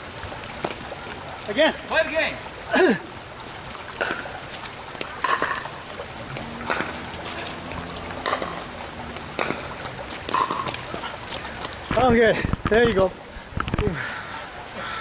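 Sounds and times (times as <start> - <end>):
shoes splashing and squeaking: 0.0 - 14.0.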